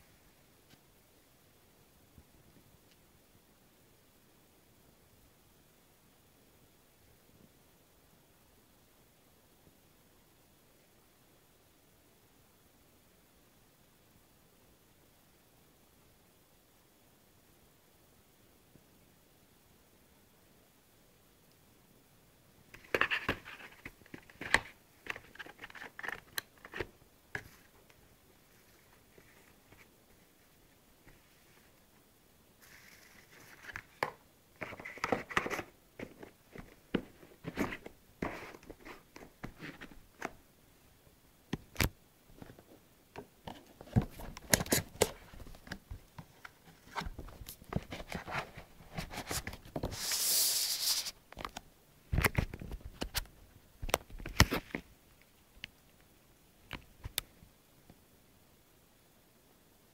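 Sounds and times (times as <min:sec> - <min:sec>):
rustling scrape: 0:32.6 - 0:34.0, 0:47.8 - 0:51.2.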